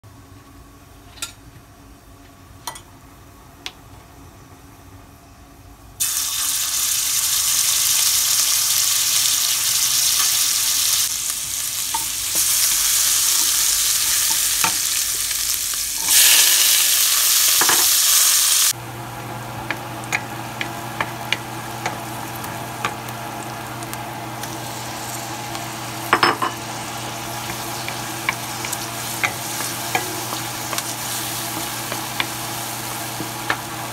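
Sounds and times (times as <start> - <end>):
spices sizzling in hot oil: 6.0 - 33.9
vegetables sizzling: 6.0 - 33.9
steady low hum: 18.7 - 33.9
wooden spoon tapping frying pan: 19.6 - 22.1, 26.1 - 33.7
spoon scraping pan: 26.1 - 33.7.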